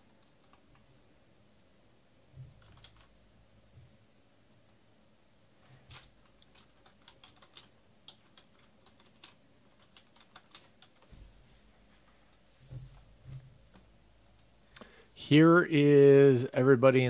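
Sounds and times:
keyboard typing: 0:00.0 - 0:00.9, 0:02.4 - 0:03.2, 0:05.8 - 0:11.1.

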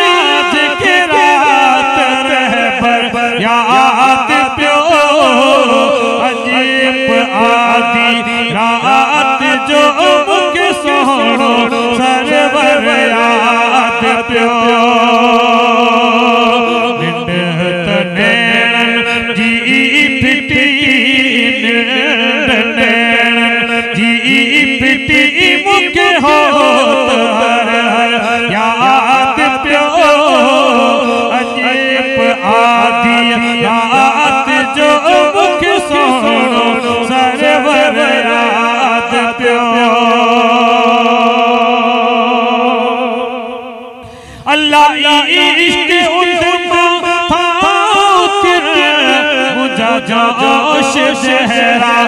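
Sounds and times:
man singing into a microphone: 0:00.0 - 0:52.0.

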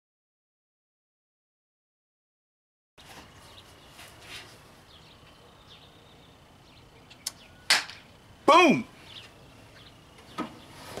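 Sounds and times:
soft rustles: 0:03.0 - 0:04.7.

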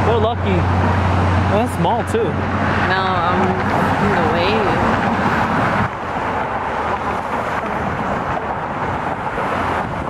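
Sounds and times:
passing road traffic: 0:00.0 - 0:10.0
wind on microphone: 0:02.3 - 0:10.0.

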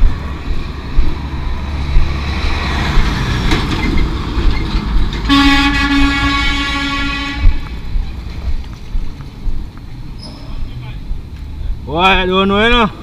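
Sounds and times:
wind buffeting: 0:00.0 - 0:12.3
road rumble: 0:00.0 - 0:13.0
vehicle horn: 0:05.3 - 0:07.7.

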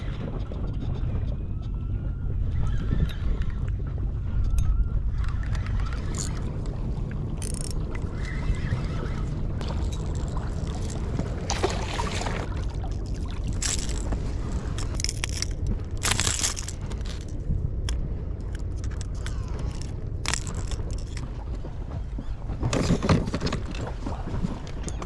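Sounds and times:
steady low rumble: 0:00.0 - 0:25.0
metallic clicks and rattles: 0:04.5 - 0:06.8, 0:07.4 - 0:08.2, 0:14.8 - 0:21.3.

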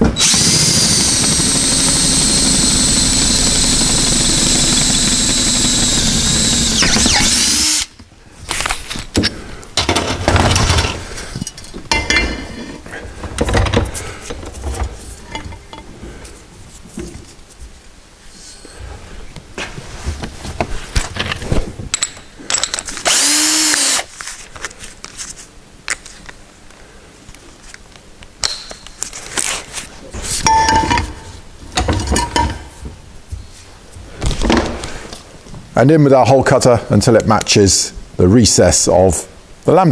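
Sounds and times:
power drill drilling into metal: 0:00.0 - 0:07.9, 0:23.0 - 0:24.1
metal pipe clinking and clanking: 0:11.4 - 0:12.5, 0:30.4 - 0:32.7
metal pipe ringing: 0:30.4 - 0:31.3.

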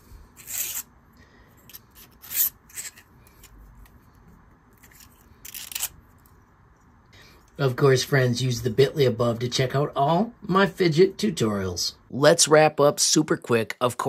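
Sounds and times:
plastic parts scraping: 0:01.6 - 0:04.0, 0:04.8 - 0:06.3.

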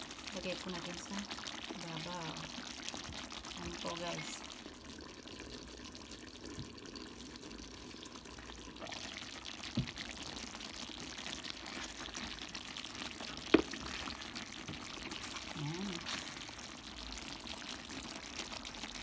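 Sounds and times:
sauce bubbling in a pan: 0:00.0 - 0:19.0
wooden spoon knocking a pan: 0:09.7 - 0:10.0, 0:13.5 - 0:13.8.

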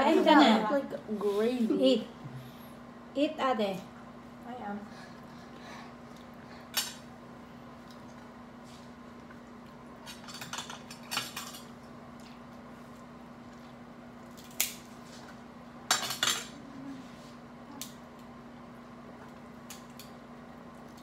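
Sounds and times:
steady low hum: 0:00.0 - 0:21.0
utensils clicking against plates: 0:10.1 - 0:11.7
shellfish shells cracking: 0:14.3 - 0:14.9.

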